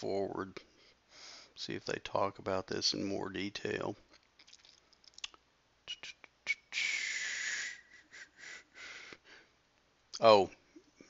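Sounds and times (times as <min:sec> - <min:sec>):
breathy exhale with whistle: 0:06.8 - 0:09.4.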